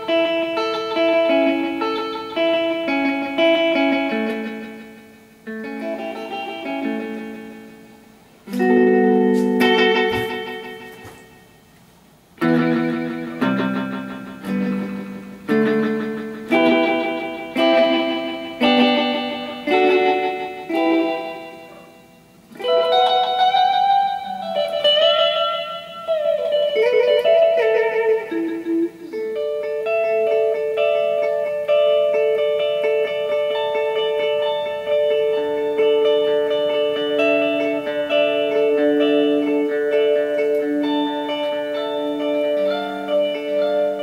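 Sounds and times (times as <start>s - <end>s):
electric guitar chords with echo: 0.0s - 44.0s
electric guitar single notes: 0.0s - 44.0s.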